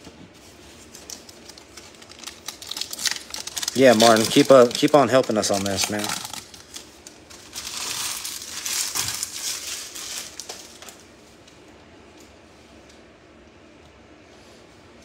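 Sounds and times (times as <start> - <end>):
foil wrapper crinkling: 0.6 - 11.1.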